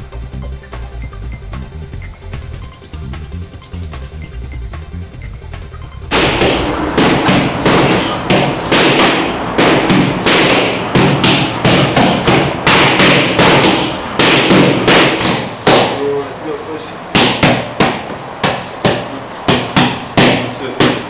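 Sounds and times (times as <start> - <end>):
boxing gloves hitting focus mitts: 6.1 - 16.1, 17.1 - 21.0.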